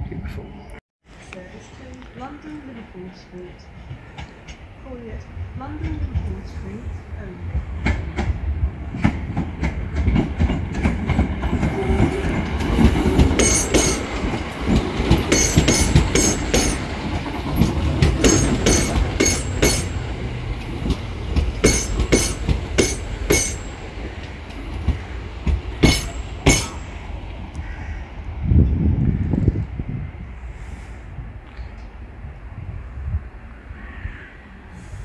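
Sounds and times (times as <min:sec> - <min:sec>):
train rumble passing: 0:01.1 - 0:35.0
wheels clicking over rail joints: 0:07.8 - 0:27.6.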